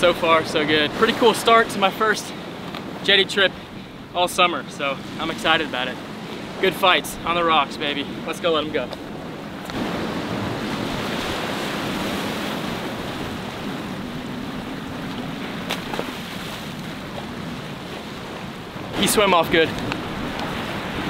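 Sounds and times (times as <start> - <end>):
surf breaking on rocks: 4.9 - 21.0.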